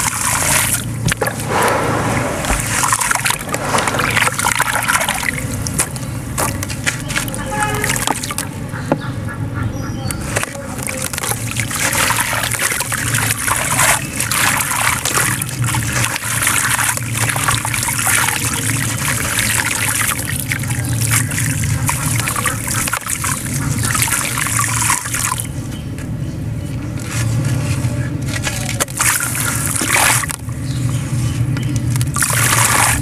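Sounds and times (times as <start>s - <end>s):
steady low hum: 0.0s - 33.0s
grit trickling into water: 2.4s - 8.6s, 10.3s - 25.6s, 28.2s - 31.2s, 31.8s - 33.0s.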